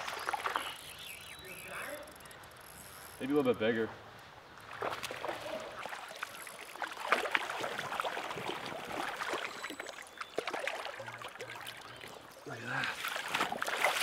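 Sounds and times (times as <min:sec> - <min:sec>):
footsteps wading through water: 0:00.0 - 0:01.1, 0:04.6 - 0:14.0.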